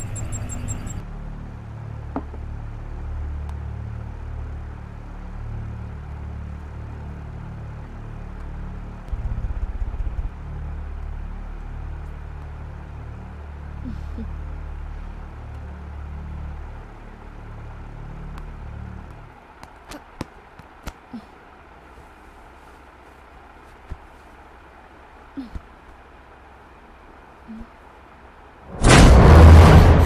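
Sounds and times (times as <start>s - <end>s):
low rumbling drone: 0.0s - 19.4s, 28.6s - 30.0s.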